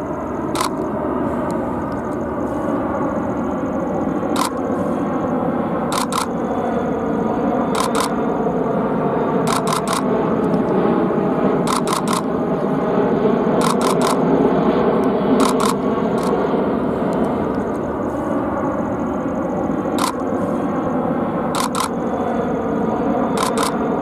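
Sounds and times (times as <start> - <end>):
jet engines overhead: 0.0 - 24.0
camera shutter clicks: 0.6 - 0.9, 4.4 - 4.6, 5.9 - 6.3, 7.8 - 8.1, 9.5 - 10.1, 11.7 - 12.3, 13.6 - 14.2, 15.4 - 16.4, 20.0 - 20.2, 21.6 - 21.9, 23.4 - 23.8.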